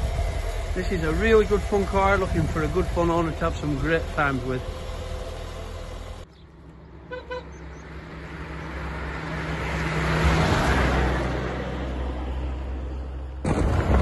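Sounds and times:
car horn toots: 0:07.1 - 0:07.6
car driving past: 0:07.6 - 0:13.4.

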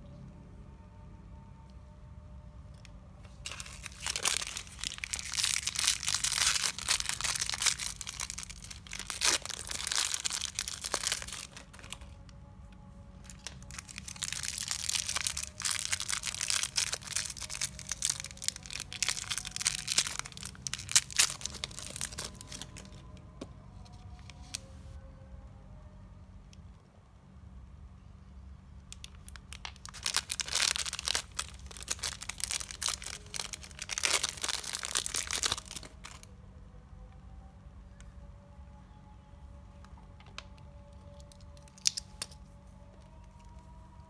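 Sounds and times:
plastic wrappers crumpling: 0:03.2 - 0:12.2, 0:13.2 - 0:24.7, 0:29.0 - 0:36.3, 0:40.2 - 0:44.0.

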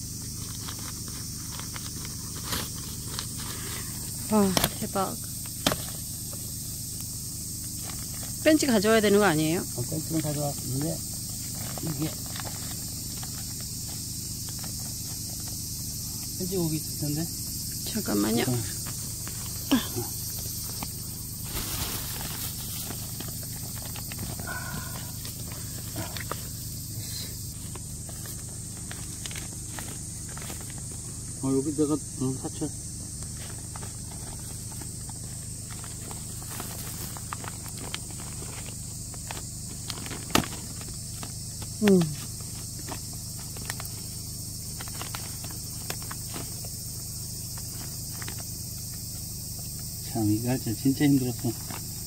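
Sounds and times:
insects buzzing: 0:00.0 - 0:52.0
steady high hiss: 0:00.0 - 0:52.0
plastic film crinkling: 0:18.8 - 0:26.6, 0:27.6 - 0:31.2, 0:33.2 - 0:47.0.

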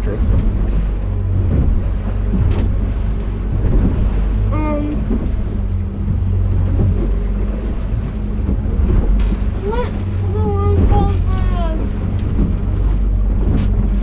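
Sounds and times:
boat engine droning: 0:00.0 - 0:14.0
wind noise on microphone: 0:00.0 - 0:14.0.

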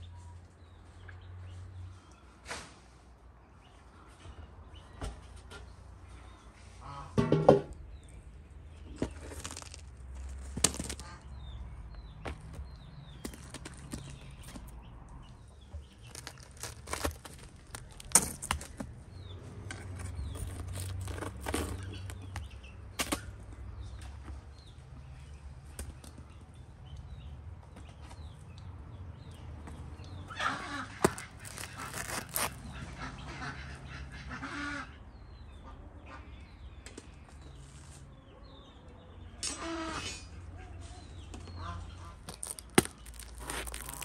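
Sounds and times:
farmyard fowl calling: 0:06.6 - 0:07.4, 0:30.3 - 0:35.0.

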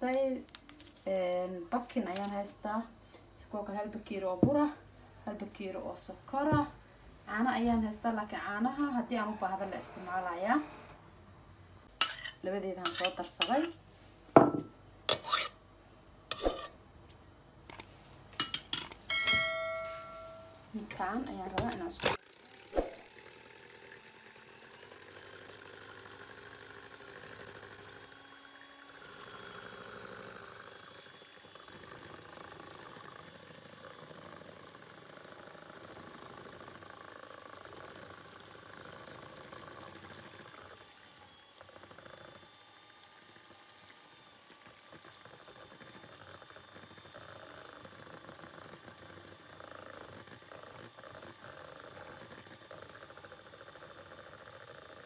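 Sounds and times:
electric hand mixer whisking: 0:20.0 - 0:55.0.

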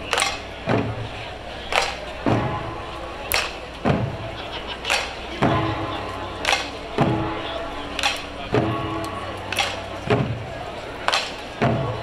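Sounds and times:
deep barrel drum hits: 0:03.8 - 0:04.3.

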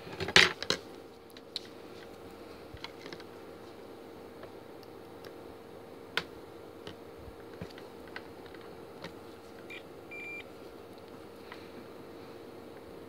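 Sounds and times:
multimeter continuity beep: 0:09.7 - 0:10.5.

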